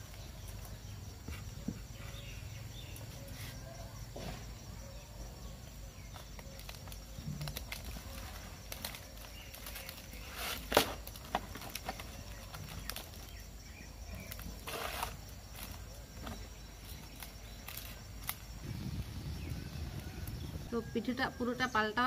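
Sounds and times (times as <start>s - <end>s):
leaves rustling in basket: 6.1s - 20.7s.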